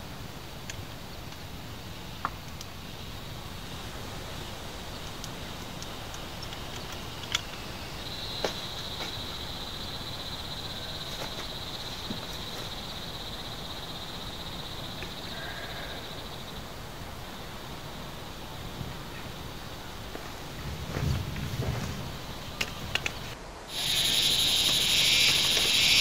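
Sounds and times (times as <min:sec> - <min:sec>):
steady background hiss: 0:00.0 - 0:26.0
insect trilling: 0:04.4 - 0:16.6, 0:23.7 - 0:26.0
sharp clicks: 0:23.8 - 0:26.0.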